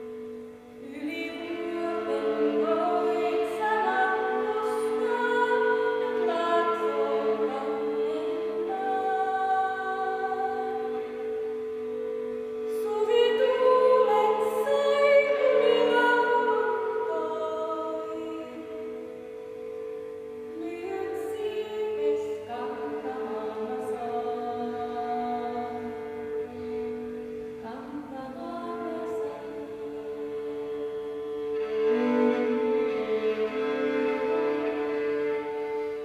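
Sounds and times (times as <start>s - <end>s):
woman singing: 0.0s - 11.6s, 12.6s - 19.4s, 20.4s - 36.0s
bowed lyre drone: 0.0s - 36.0s.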